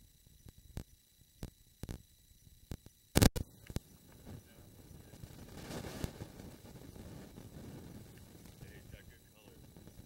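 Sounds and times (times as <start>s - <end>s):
faint steady hiss: 0.0s - 10.0s.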